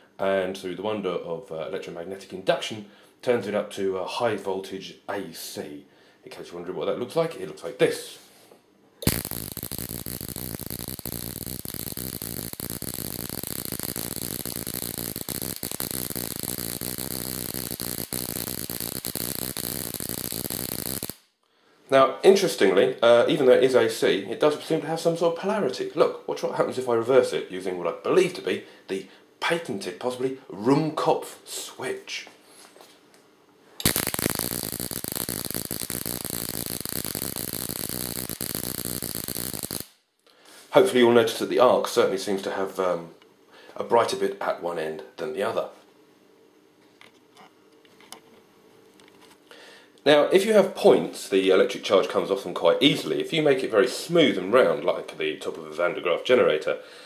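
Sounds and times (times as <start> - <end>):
induction coil buzzing: 9.0 - 21.2, 33.8 - 39.9
electric spark crackling: 9.0 - 21.3, 33.8 - 40.0.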